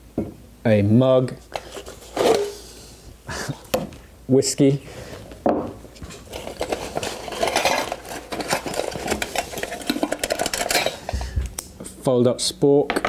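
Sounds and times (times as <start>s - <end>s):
metal utensils clinking: 6.3s - 11.3s.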